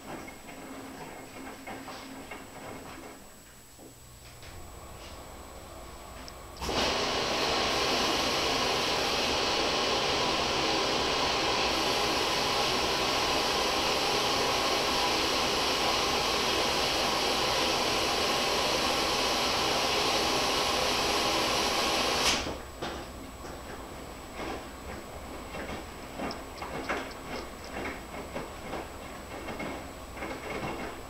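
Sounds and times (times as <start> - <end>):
water rushing into washing machine: 6.6 - 22.7, 24.3 - 31.0.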